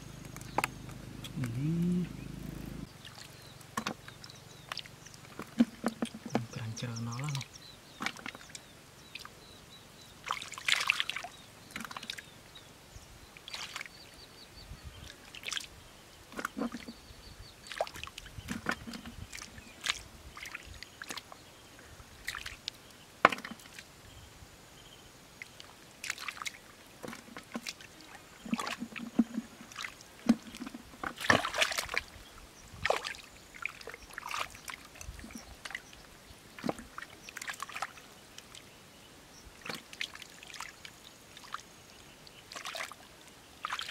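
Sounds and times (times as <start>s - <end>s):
hands splashing in muddy water: 10.2s - 12.2s, 29.7s - 32.1s, 32.8s - 35.8s, 42.5s - 43.0s, 43.6s - 43.9s.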